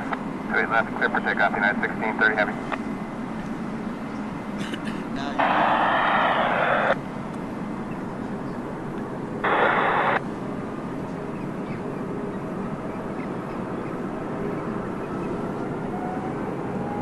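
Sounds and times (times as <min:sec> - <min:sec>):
faint high engine whine: 0:00.0 - 0:17.0
jet engines rumbling: 0:00.0 - 0:17.0
radio transmission burst: 0:05.2 - 0:07.0, 0:09.4 - 0:10.2.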